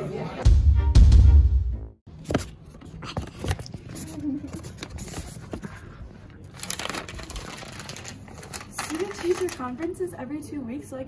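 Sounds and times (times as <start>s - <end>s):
paper handling rustles and taps: 2.2s - 9.8s.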